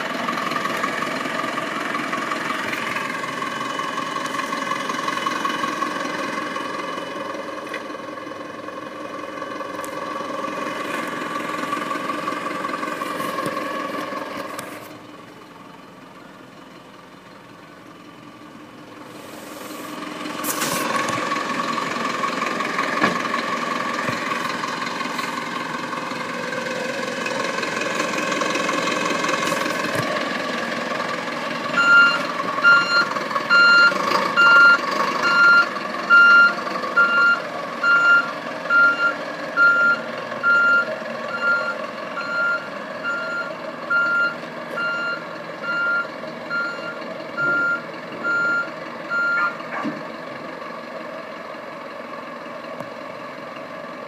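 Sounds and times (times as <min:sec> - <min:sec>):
truck engine idling: 0:00.0 - 0:54.0
backup alarm beeping: 0:31.8 - 0:49.6.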